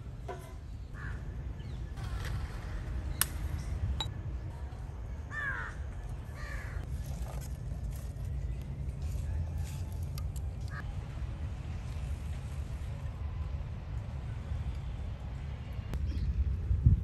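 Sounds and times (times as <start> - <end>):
crows cawing: 1.0 - 1.2, 5.3 - 5.8, 6.4 - 6.8.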